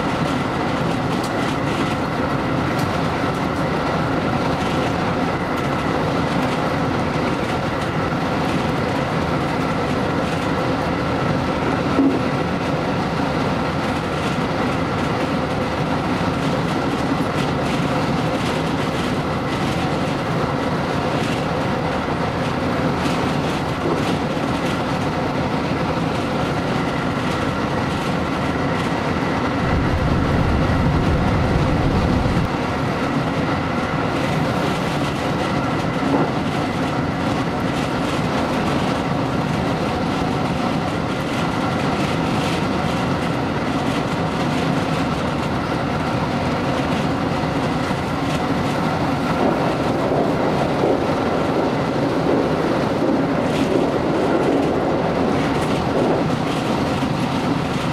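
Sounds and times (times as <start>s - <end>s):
train wheels rumbling on rails: 0.0s - 57.9s
heavier low rumble: 29.6s - 32.5s.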